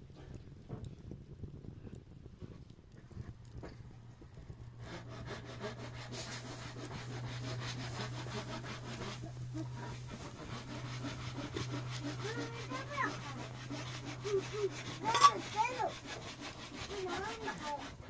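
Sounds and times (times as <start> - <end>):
constant low hum: 0.0 - 18.0
rhythmic rasping strokes: 4.8 - 18.0.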